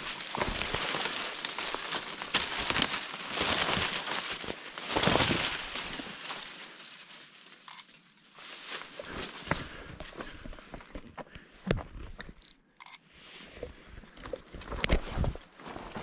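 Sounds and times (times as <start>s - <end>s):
footsteps through dry leaves: 0.0s - 10.4s.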